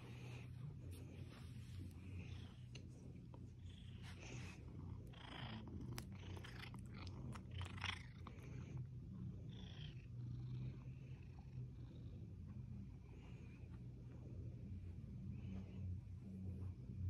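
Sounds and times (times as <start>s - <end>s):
soft rustles: 0.0s - 4.8s
cat purring: 0.0s - 17.0s.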